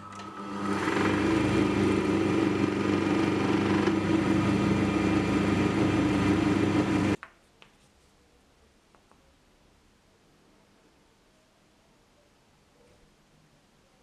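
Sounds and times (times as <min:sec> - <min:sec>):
lathe motor hum: 0:00.0 - 0:07.2.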